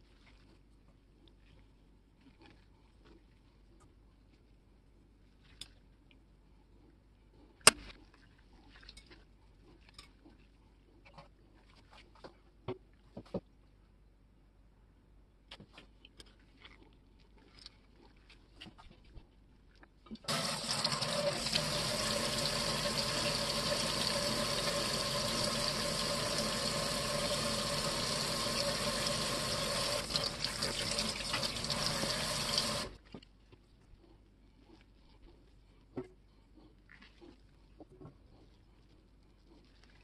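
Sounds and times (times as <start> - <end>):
faucet water running into metal sink: 20.3 - 33.0.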